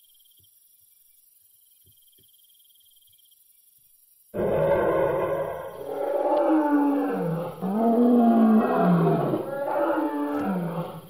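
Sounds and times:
dinosaur roars: 0:04.4 - 0:11.0.

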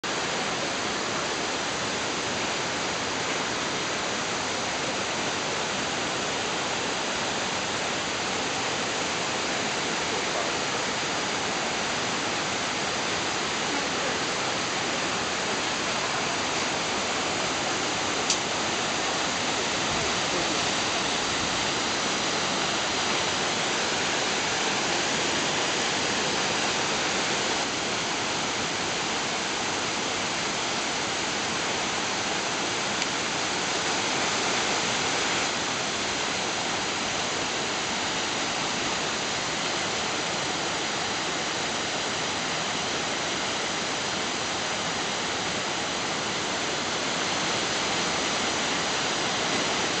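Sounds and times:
waterfall rushing: 0:00.0 - 0:50.0.

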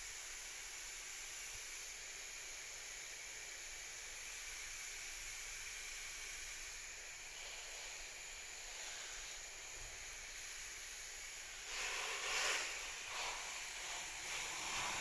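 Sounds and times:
garden hose spraying water: 0:00.0 - 0:15.0.

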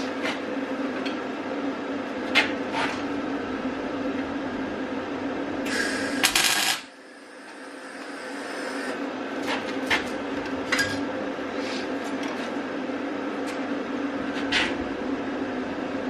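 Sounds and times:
steady hum: 0:00.0 - 0:16.0
arc welding crackle: 0:05.6 - 0:09.6.

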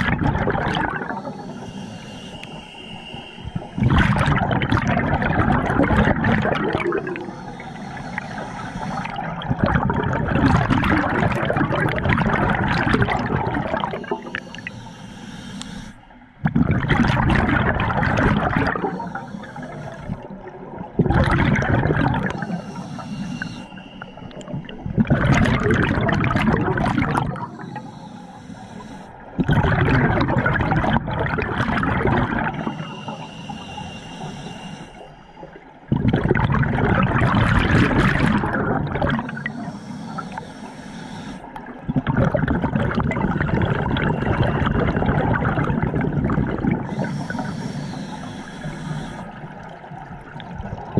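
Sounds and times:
exhaled bubbles rushing: 0:00.0 - 0:01.6, 0:03.4 - 0:07.3, 0:08.1 - 0:14.6, 0:16.4 - 0:22.6, 0:24.3 - 0:27.5, 0:29.4 - 0:32.9, 0:35.5 - 0:39.6, 0:41.6 - 0:47.5, 0:49.3 - 0:50.9
regulator hissing on inhale: 0:00.8 - 0:04.4, 0:06.1 - 0:11.7, 0:12.3 - 0:16.4, 0:18.4 - 0:20.5, 0:22.0 - 0:24.8, 0:26.9 - 0:29.4, 0:32.3 - 0:35.9, 0:39.1 - 0:41.8, 0:46.6 - 0:49.8.

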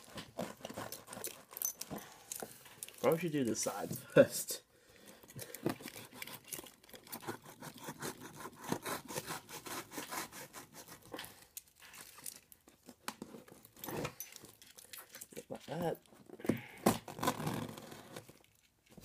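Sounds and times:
tape being scratched and torn: 0:05.8 - 0:12.3, 0:16.9 - 0:18.4.

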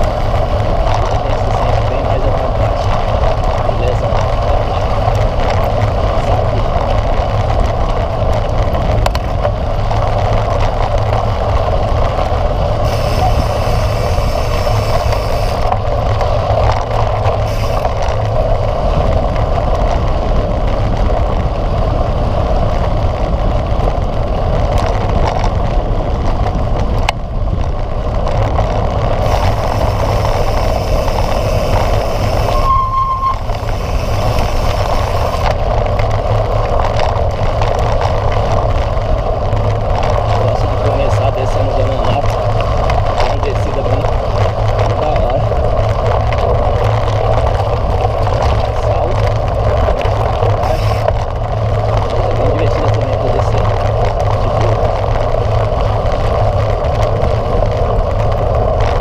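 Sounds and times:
bike tyres rolling on gravel: 0:00.0 - 0:59.0
wind on microphone: 0:00.0 - 0:59.0
brief high tone: 0:32.5 - 0:33.4.

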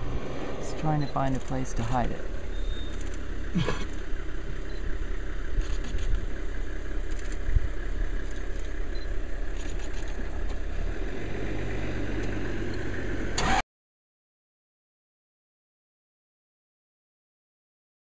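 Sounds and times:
vehicle engine idling: 0:00.0 - 0:13.6.

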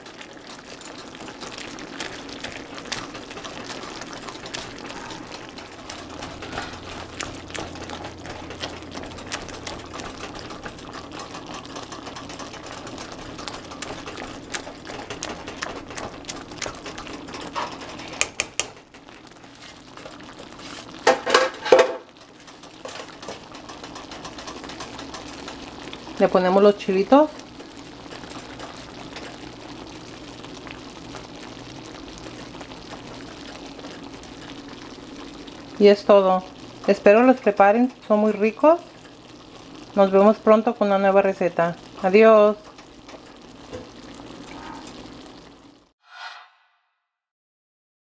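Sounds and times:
masher scraping frying pan: 0:02.6 - 0:25.9.

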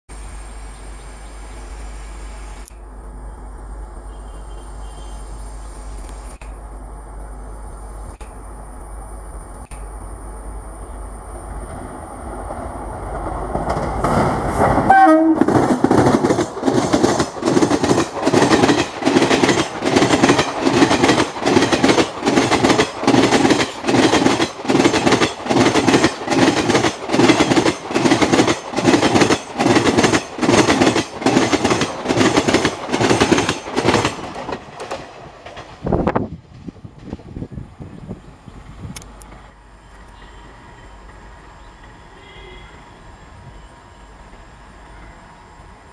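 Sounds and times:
train passing: 0:00.1 - 0:45.9
wheels clickety-clack on rail joints: 0:11.6 - 0:38.0, 0:38.9 - 0:42.0.

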